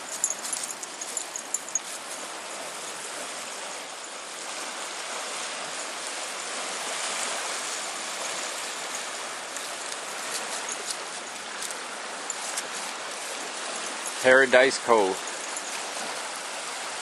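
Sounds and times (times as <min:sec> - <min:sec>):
waves washing over pebbles: 0:00.0 - 0:17.0
light ticks: 0:09.5 - 0:11.0.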